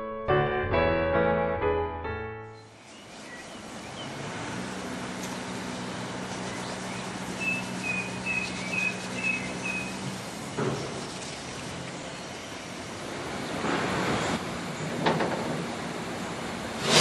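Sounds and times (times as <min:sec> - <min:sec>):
bird chirping: 0:02.5 - 0:04.2, 0:06.3 - 0:10.0
steam locomotive hissing and humming: 0:16.6 - 0:17.0.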